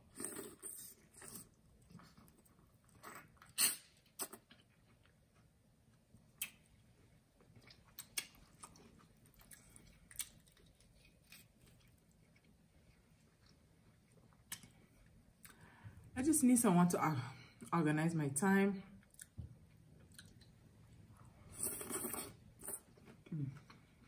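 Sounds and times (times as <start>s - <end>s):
wet sucking and chewing: 0.0s - 4.7s, 21.4s - 23.1s.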